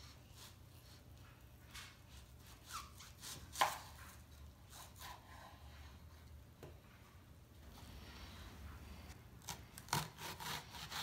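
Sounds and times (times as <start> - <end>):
knife slicing onion on wooden board: 1.9 - 5.8, 9.4 - 11.0.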